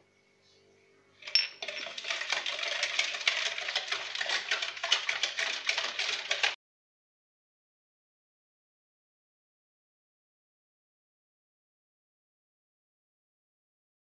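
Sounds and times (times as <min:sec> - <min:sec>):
whisk clattering against bowl: 0:01.2 - 0:06.6.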